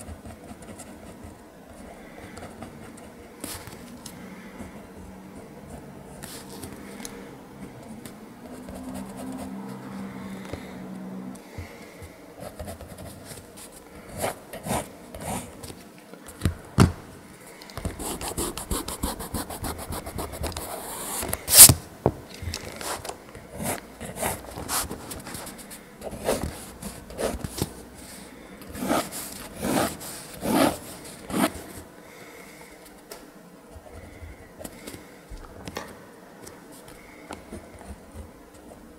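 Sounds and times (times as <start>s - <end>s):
pencil scratching on paper: 0.0s - 3.7s, 8.5s - 9.8s, 17.9s - 21.7s, 28.7s - 31.8s
eraser rubbing on paper: 17.9s - 21.7s, 23.6s - 27.7s, 28.8s - 31.8s.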